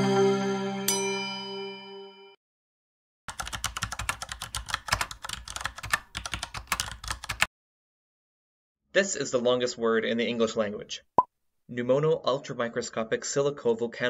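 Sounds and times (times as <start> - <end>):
rapid keyboard typing: 3.3 - 7.5.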